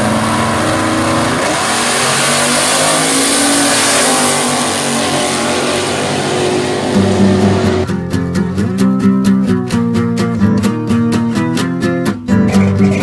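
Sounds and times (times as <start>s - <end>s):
racing car engines at full throttle: 0.0s - 7.9s.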